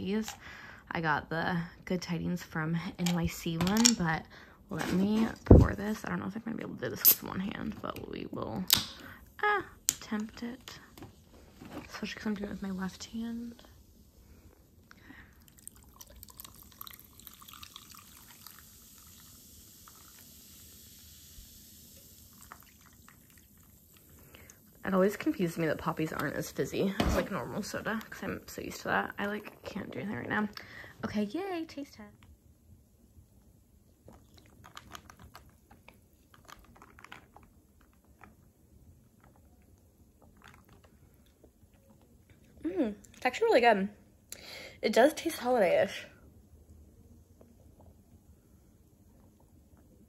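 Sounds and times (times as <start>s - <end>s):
faint fizzing hiss: 7.0s - 42.5s
soda pouring over ice: 15.3s - 25.3s, 36.2s - 38.2s.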